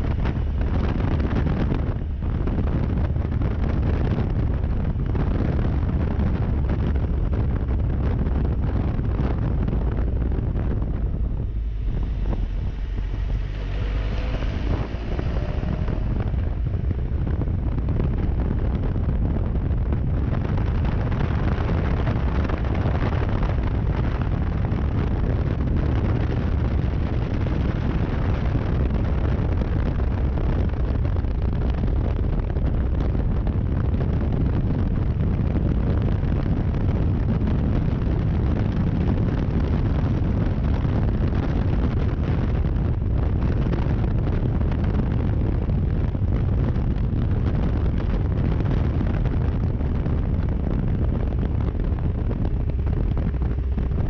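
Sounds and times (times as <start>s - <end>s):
motorcycle engine running: 0.0s - 34.1s
wind rushing over microphone: 0.0s - 54.0s.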